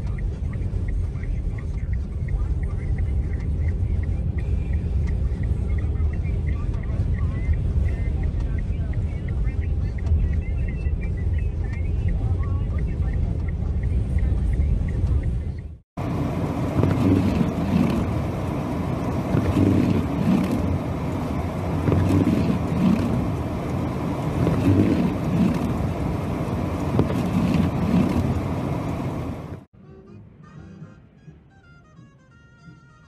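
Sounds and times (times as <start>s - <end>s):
vehicle running noise: 0.0s - 33.0s
blizzard wind gusting: 16.0s - 29.7s.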